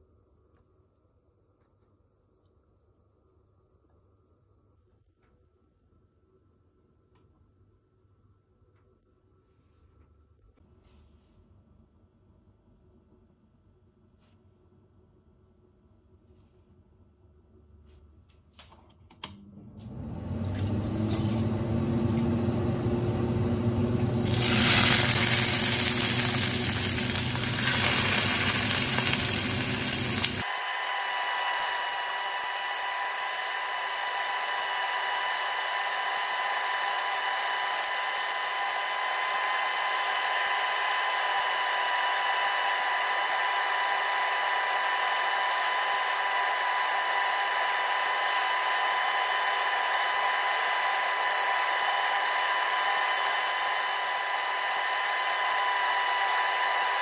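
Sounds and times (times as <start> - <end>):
steady mechanical hum: 12.8 - 57.0
steaks sizzling in frying pan: 24.2 - 30.4.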